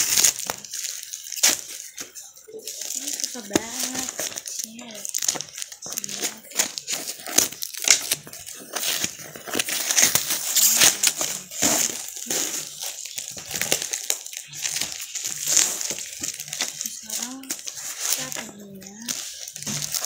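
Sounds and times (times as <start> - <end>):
paper packaging crinkling: 0.0 - 20.0
cardboard box being torn open: 2.8 - 18.5.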